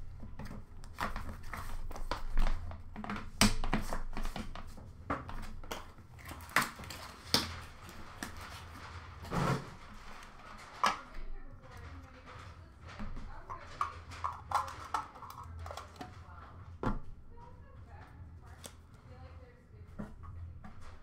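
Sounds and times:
plastic card cases tapping and clicking: 0.1s - 8.8s, 12.9s - 16.2s.

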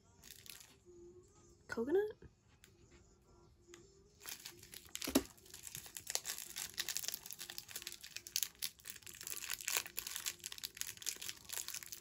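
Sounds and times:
plastic wrapper crinkling: 0.2s - 0.7s, 4.2s - 12.0s.

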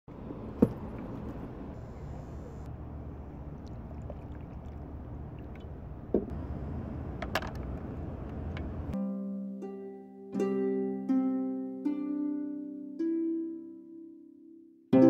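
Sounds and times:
low outdoor rumble: 0.1s - 9.0s.

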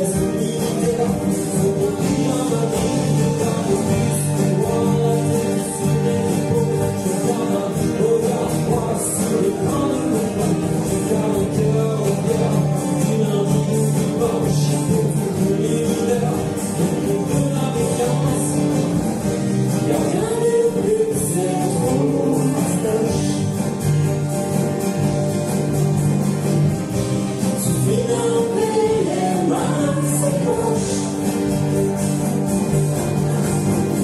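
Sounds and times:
voices singing: 0.0s - 19.0s, 27.4s - 31.7s
acoustic guitars strumming: 0.0s - 34.0s.

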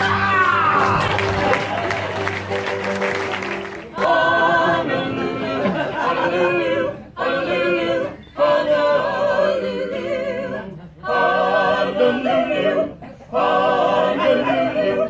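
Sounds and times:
group singing show tune: 3.5s - 15.0s.

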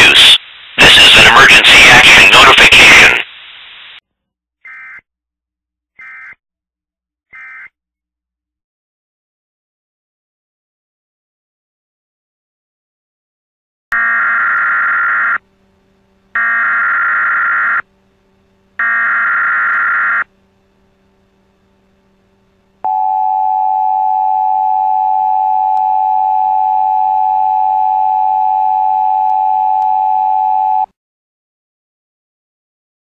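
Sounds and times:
steady attention tone: 14.9s - 30.8s
screechy digital data tones: 18.8s - 20.3s.

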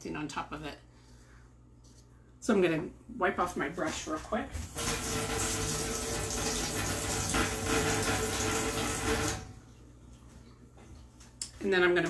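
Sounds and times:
tap water running into sink: 4.6s - 9.6s.

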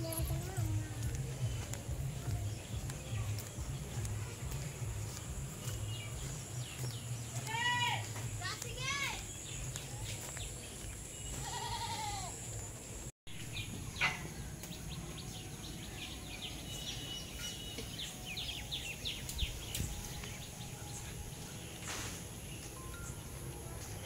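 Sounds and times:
birds chirping: 0.0s - 24.0s
outdoor background noise: 0.0s - 24.0s
drawn-out animal call: 11.4s - 12.3s.

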